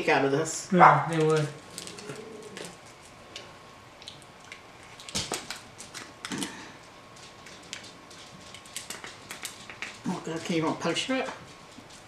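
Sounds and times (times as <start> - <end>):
plastic package clicks and crinkles: 1.1 - 10.1.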